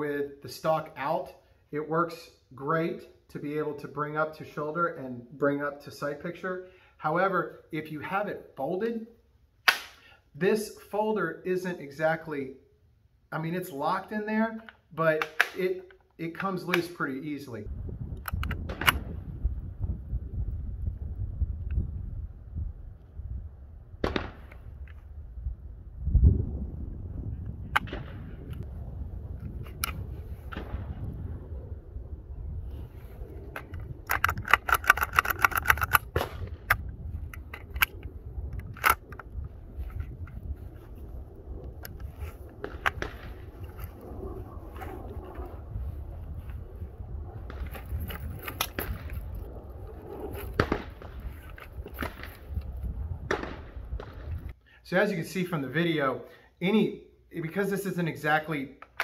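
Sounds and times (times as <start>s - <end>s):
wind rumble on microphone: 17.6s - 54.6s
rifle rattling on sling: 33.5s - 40.4s, 47.5s - 52.7s.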